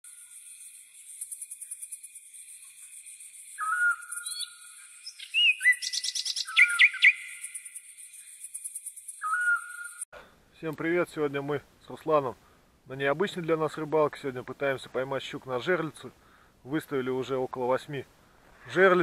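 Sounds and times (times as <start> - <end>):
birds calling with whistled notes: 0.1 - 10.1
quick bird chirps: 1.0 - 10.0.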